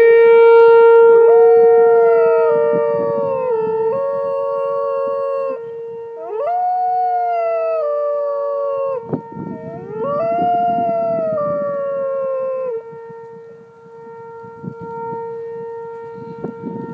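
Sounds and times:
dog howling: 1.4 - 5.6, 6.2 - 12.9.

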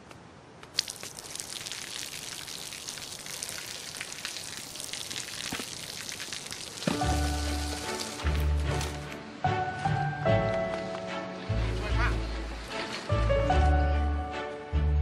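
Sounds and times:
water splashing onto pavement: 0.7 - 9.0.

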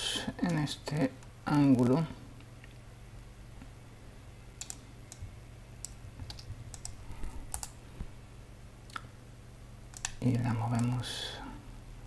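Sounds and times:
faint low hum: 0.0 - 12.0
computer mouse clicks: 4.6 - 7.8, 9.9 - 11.0.

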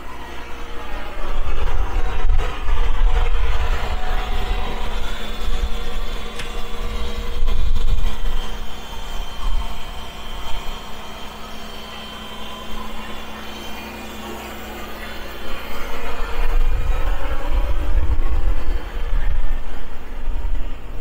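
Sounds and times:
diesel engine rumble: 0.0 - 21.0
high-pitched engine whine: 0.0 - 21.0.

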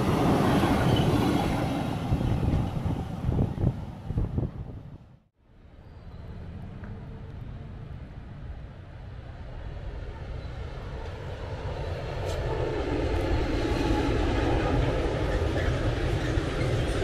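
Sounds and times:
freight train passing: 0.0 - 5.0, 5.6 - 17.0
wheels rumbling on rail: 0.0 - 5.2, 5.8 - 17.0.

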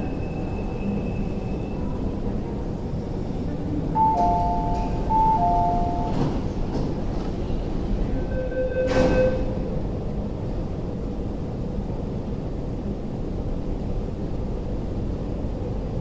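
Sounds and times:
train doors opening: 0.0 - 10.6
train and station hum: 0.0 - 16.0
two-note electronic door chime: 4.0 - 6.3.

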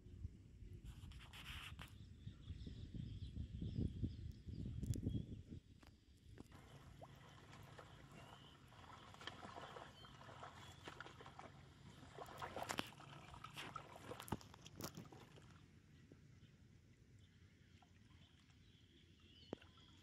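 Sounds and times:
water sloshing and splashing: 6.4 - 15.8, 17.6 - 20.0.

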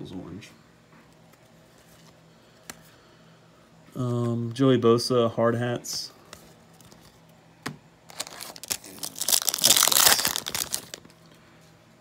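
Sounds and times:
plastic wrapper crinkling: 8.1 - 11.2.

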